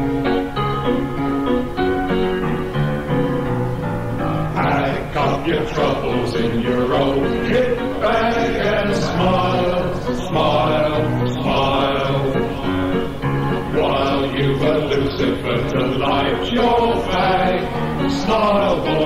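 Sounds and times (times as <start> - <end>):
choir singing: 4.3 - 19.0.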